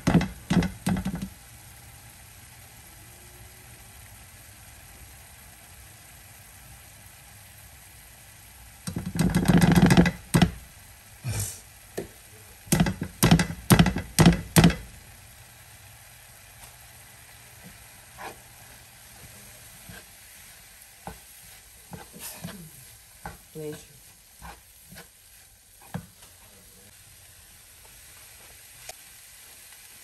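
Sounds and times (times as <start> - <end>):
spoon tapping frying pan rim: 12.7 - 14.9.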